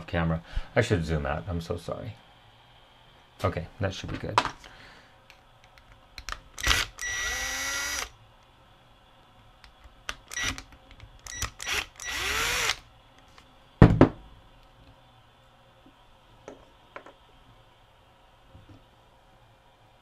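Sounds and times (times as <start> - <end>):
drill bit clicks: 5.7 - 8.1, 9.7 - 12.8
cordless drill spinning: 6.6 - 8.1, 10.3 - 10.7, 11.3 - 12.9.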